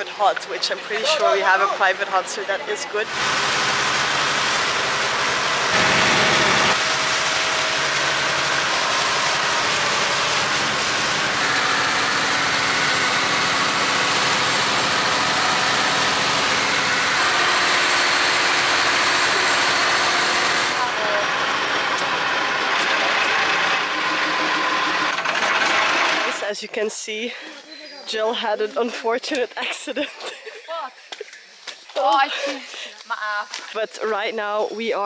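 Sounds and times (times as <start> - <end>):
boat engine running: 3.1 - 26.4.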